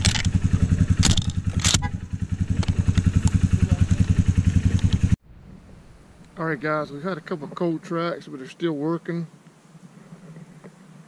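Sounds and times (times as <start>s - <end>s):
sharp clatters: 0.0s - 1.9s
small engine running: 0.0s - 5.2s.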